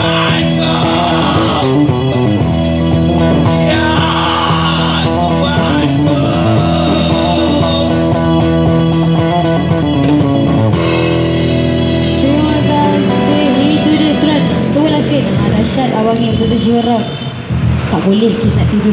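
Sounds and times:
person singing: 0.0 - 2.0, 3.5 - 9.4
drum kit: 0.0 - 16.6, 17.4 - 18.0
amplified guitar and bass: 0.0 - 18.9.

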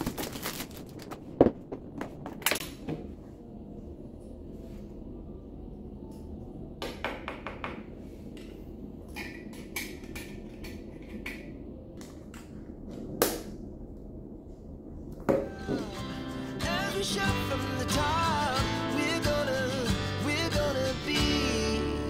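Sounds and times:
low room rumble: 0.0 - 22.0
background music: 15.5 - 22.0.

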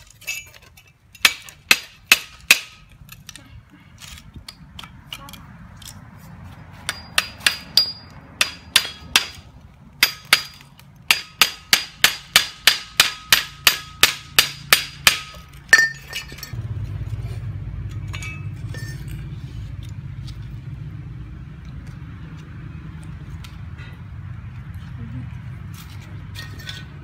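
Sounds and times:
hammer striking metal: 1.2 - 2.8, 6.8 - 9.4, 10.0 - 16.6
low steady rumble: 13.6 - 27.0.

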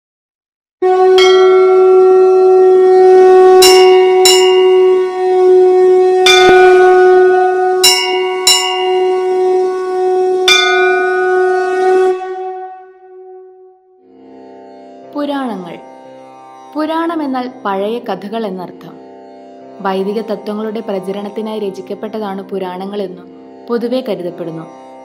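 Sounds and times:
conch shell blown: 0.8 - 14.0
bell struck: 1.2 - 2.5, 3.6 - 5.4, 6.2 - 9.8, 10.4 - 13.7.

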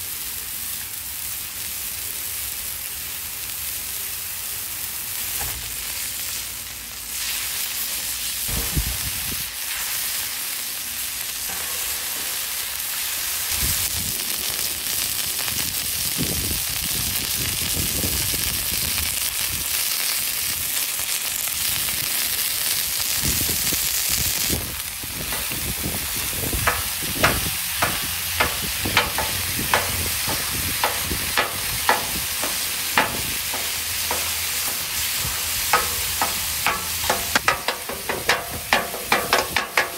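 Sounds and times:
burger patties sizzling on griddle: 0.0 - 39.9
spatula chopping on griddle: 25.2 - 39.9
metal spatula scraping steel: 26.7 - 39.9.

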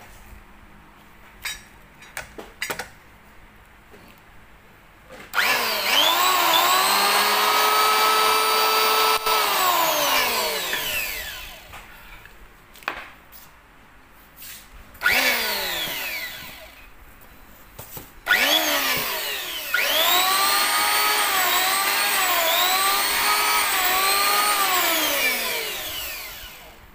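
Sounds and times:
electric planer motor running: 5.4 - 11.7, 15.0 - 16.8, 18.3 - 26.8.

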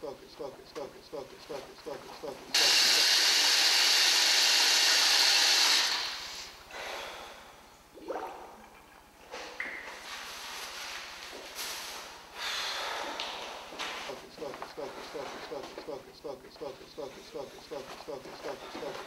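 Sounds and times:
man breathing and snorting: 6.2 - 7.9, 12.2 - 19.0.

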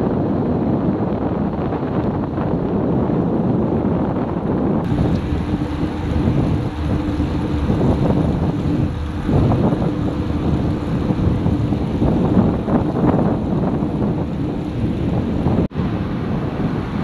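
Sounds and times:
wind buffeting microphone: 0.0 - 17.0
faint steady hum: 4.6 - 17.0.

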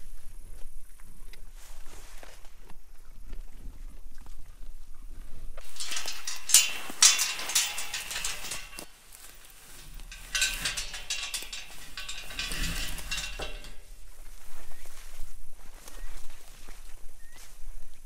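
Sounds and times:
sharp metal knocks: 5.6 - 8.9, 9.6 - 13.9
metal panel scraping through grass: 5.6 - 14.0.

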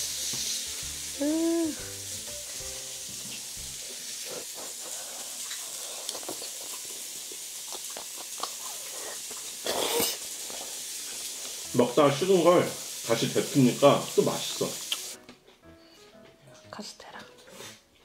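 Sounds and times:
steak sizzling on a grill pan: 0.0 - 15.2
person chewing noodles: 3.8 - 11.5.

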